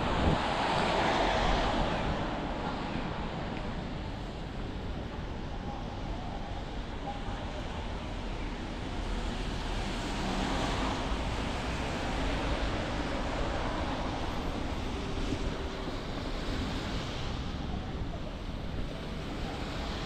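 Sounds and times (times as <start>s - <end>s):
street traffic rushing past: 0.0s - 5.4s, 7.5s - 20.0s.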